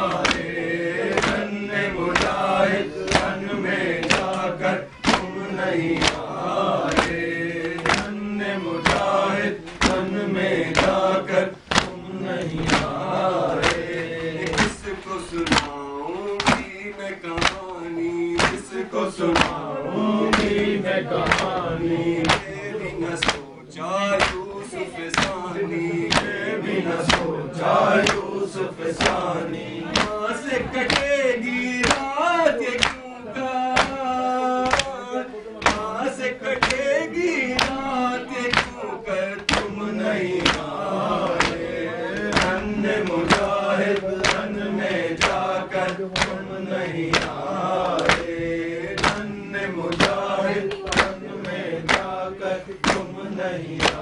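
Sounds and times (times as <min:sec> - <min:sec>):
men chanting in unison: 0:00.0 - 0:54.0
chest slaps: 0:11.7 - 0:12.0, 0:12.6 - 0:13.0.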